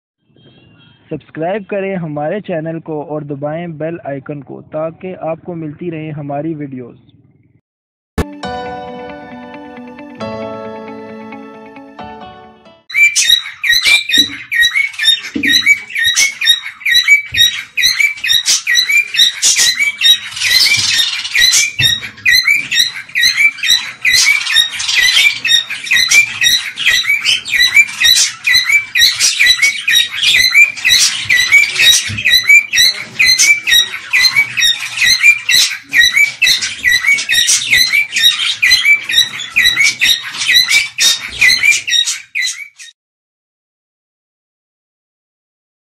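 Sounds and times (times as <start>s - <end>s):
cockatiels calling: 12.9s - 42.9s.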